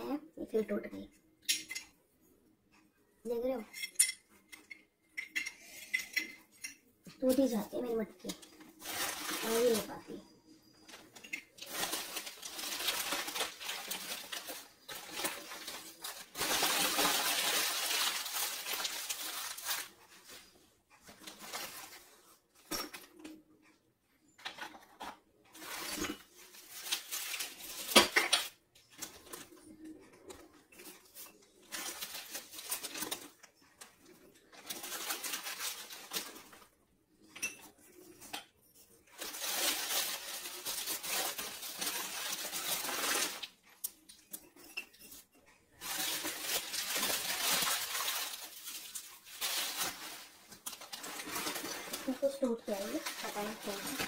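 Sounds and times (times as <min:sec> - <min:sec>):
packaging crinkling: 0:08.8 - 0:10.0, 0:10.9 - 0:20.3, 0:25.6 - 0:27.9, 0:34.5 - 0:36.7, 0:39.1 - 0:43.6, 0:45.8 - 0:54.0.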